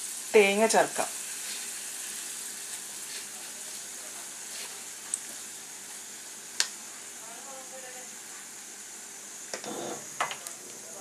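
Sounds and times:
oil sizzling in a pan: 0.0 - 11.0.

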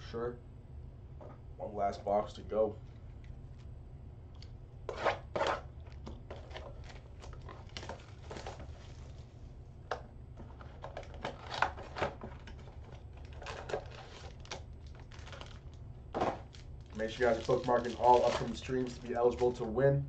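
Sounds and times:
steady low hum: 0.0 - 20.0
foil packs crinkling: 6.3 - 9.2, 10.6 - 19.8.

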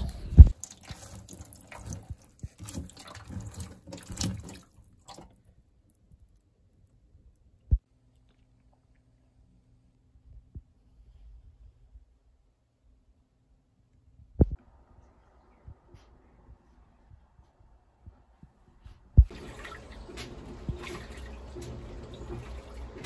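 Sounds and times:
fruit swished in water: 19.2 - 23.0.

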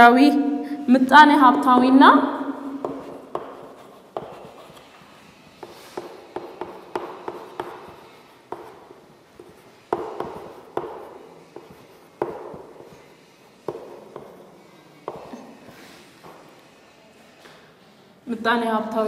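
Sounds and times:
chalk taps on board: 2.8 - 14.4, 15.0 - 16.6.

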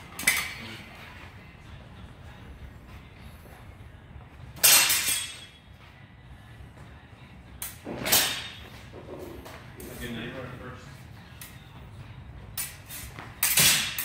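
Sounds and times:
steel sword blades clashing: 4.6 - 5.6, 13.4 - 14.0.

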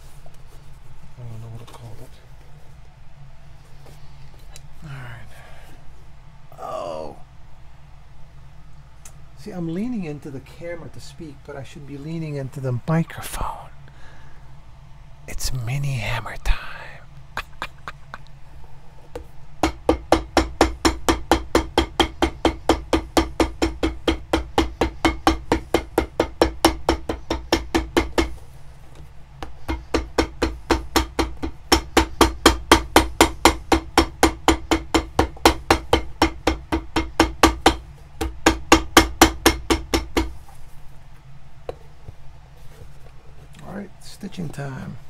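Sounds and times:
hammer tapping on leather boot: 19.6 - 28.4, 29.4 - 40.4.

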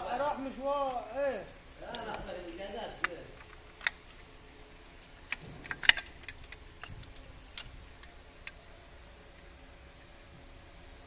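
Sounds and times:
hands handling hoses and connectors: 1.8 - 10.3.

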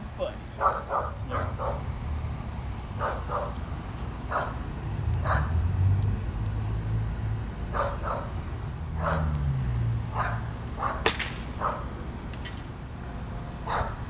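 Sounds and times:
dog barking: 0.6 - 1.9, 3.0 - 3.6, 4.3 - 4.6, 5.2 - 5.6, 7.7 - 8.4, 9.0 - 9.4, 10.1 - 11.9, 13.6 - 14.0.

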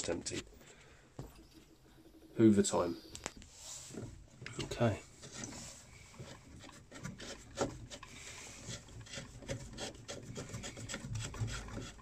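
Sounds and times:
plastic scraping and rubbing: 3.2 - 12.0.

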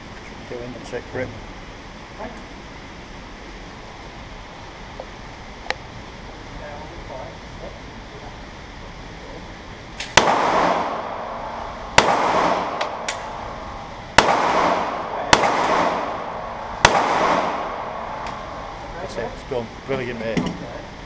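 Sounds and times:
pistol shots echoing indoors: 10.0 - 18.7
faint sharp cracks: 12.0 - 13.4.

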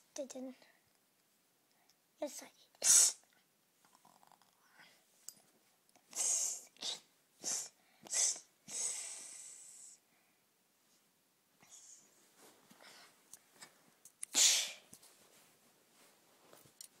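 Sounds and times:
person's breathy hissing: 2.8 - 3.2, 6.1 - 10.1, 14.3 - 14.9.

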